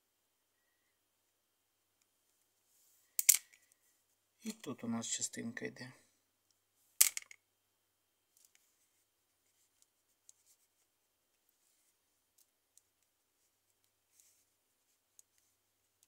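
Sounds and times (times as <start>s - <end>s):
hands handling clatter: 7.0s - 7.4s.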